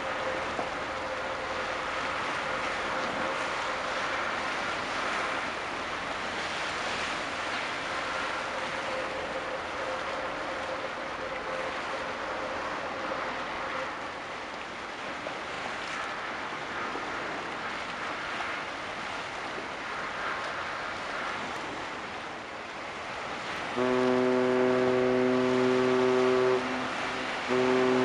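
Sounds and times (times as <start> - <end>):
choppy sea water washing: 0.0 - 28.0
faint steady hum: 23.8 - 28.0.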